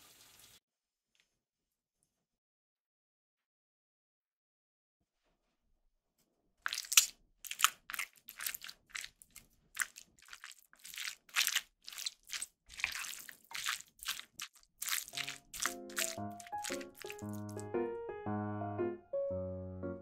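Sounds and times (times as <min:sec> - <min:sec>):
spoon squishing and scraping bowl: 0:06.6 - 0:17.6
light music: 0:15.2 - 0:20.0.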